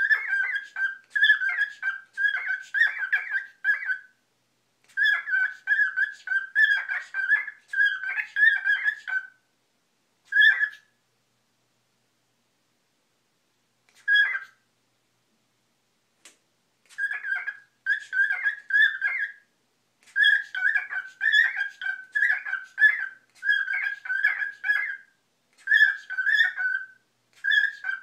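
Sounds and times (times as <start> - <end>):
cockatiel chirping and warbling: 0.0 - 4.2, 4.9 - 9.4, 10.3 - 11.0, 13.9 - 14.6, 16.9 - 28.0.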